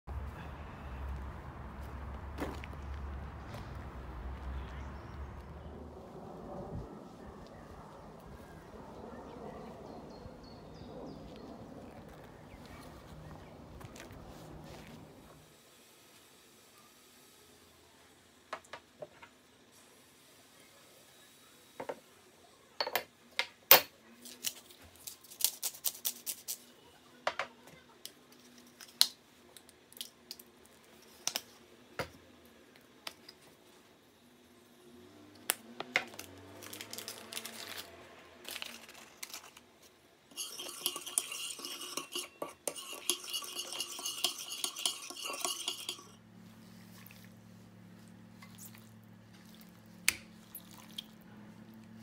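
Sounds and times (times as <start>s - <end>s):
kitchen utensils clicking and tapping: 40.3s - 46.2s
metal spoon scraping ceramic bowl: 40.3s - 46.2s.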